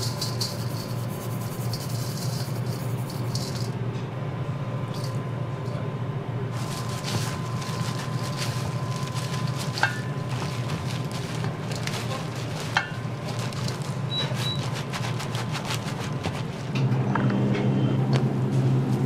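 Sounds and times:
steady background hum: 0:00.0 - 0:19.0
gloved hands squishing rice: 0:06.5 - 0:16.8.

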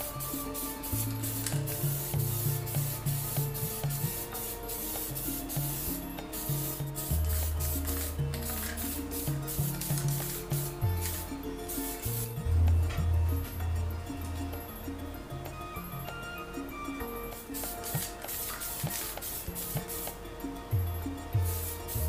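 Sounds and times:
aerosol spray can hissing: 0:00.0 - 0:12.4, 0:17.2 - 0:20.2, 0:21.4 - 0:22.0
background music with bass: 0:00.0 - 0:22.0.

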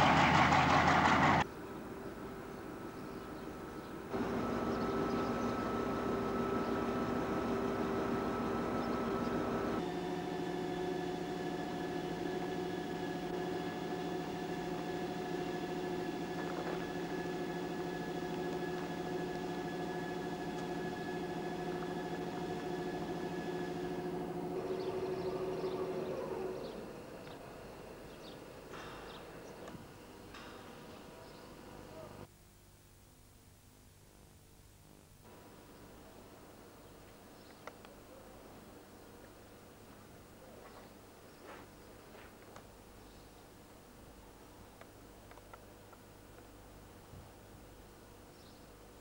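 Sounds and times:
locomotive engines idling: 0:00.0 - 0:32.3.

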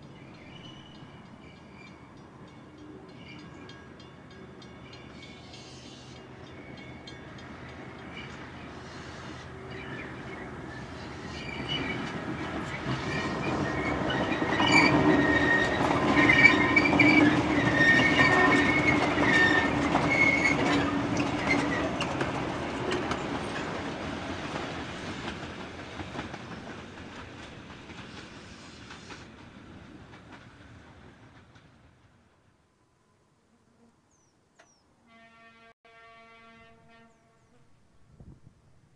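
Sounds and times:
railcar engine and wheels passing: 0:00.0 - 0:33.5
wheels clicking on rails: 0:00.3 - 0:32.2
wheel squeal: 0:08.2 - 0:12.1, 0:12.7 - 0:22.2.

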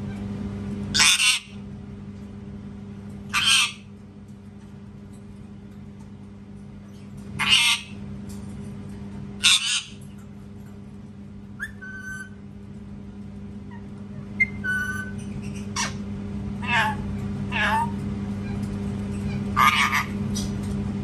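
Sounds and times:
parakeet screeching: 0:00.9 - 0:01.6, 0:03.3 - 0:03.9, 0:07.4 - 0:08.0, 0:09.4 - 0:10.0, 0:11.6 - 0:12.4, 0:13.7 - 0:16.0, 0:16.6 - 0:18.6, 0:19.2 - 0:20.5.

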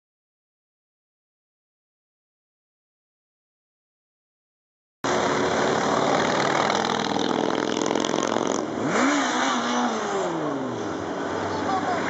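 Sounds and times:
motorcycles riding past: 0:05.1 - 0:12.0.

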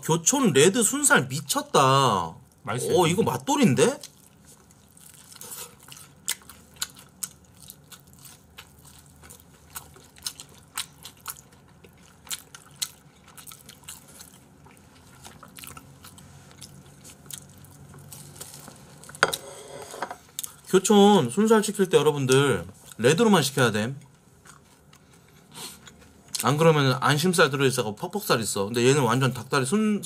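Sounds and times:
crunchy chewing of fried chicken: 0:03.8 - 0:19.3, 0:24.0 - 0:26.6.

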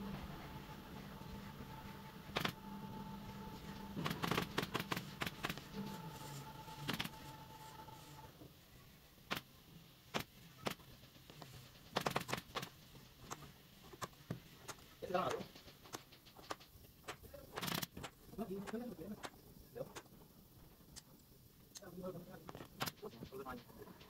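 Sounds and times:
steady machine hum: 0:00.0 - 0:09.2
sharp clicks and knocks: 0:10.1 - 0:20.2.

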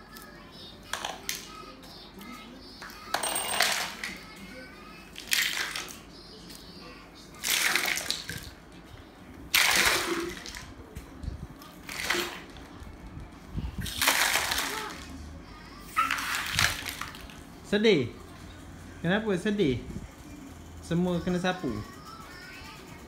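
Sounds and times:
plastic toys clattering: 0:03.1 - 0:04.2.

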